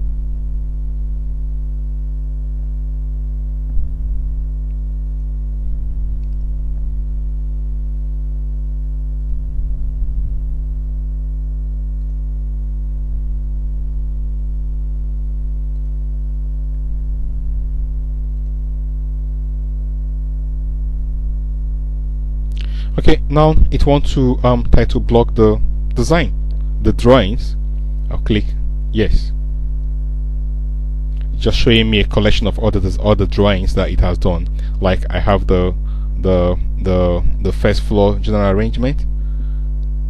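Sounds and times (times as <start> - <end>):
electrical mains hum: 0.0 - 40.0
soft low bumps: 3.6 - 7.4, 9.2 - 11.2.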